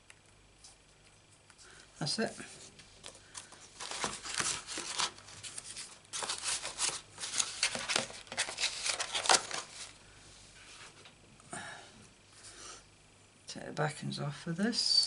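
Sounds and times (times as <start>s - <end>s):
plastic sheet crinkling: 3.0s - 10.0s.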